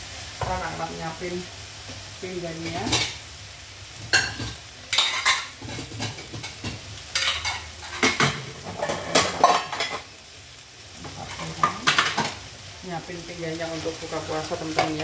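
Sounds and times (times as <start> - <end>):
plates clinking: 4.2 - 10.0.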